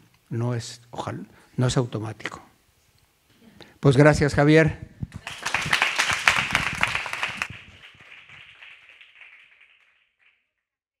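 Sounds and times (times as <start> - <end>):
small audience applauding: 5.1 - 10.5.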